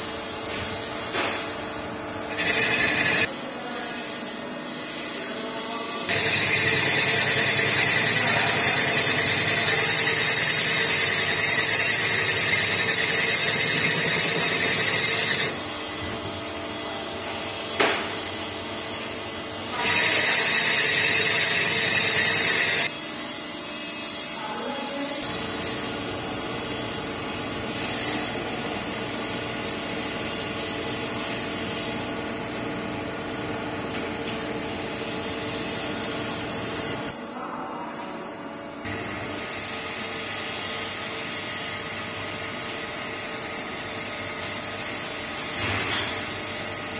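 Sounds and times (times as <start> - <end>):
lathe high-pitched whine: 2.3 - 3.3, 6.0 - 16.2, 19.7 - 24.3, 25.2 - 26.1, 27.7 - 37.2, 38.9 - 46.9
machine running: 2.3 - 3.3, 6.0 - 16.2, 19.6 - 23.0, 25.2 - 37.2, 38.8 - 46.9.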